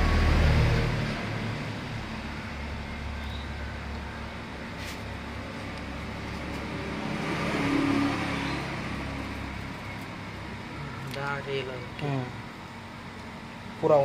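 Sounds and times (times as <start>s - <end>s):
vehicle passing by: 0.0s - 3.9s, 4.8s - 11.9s.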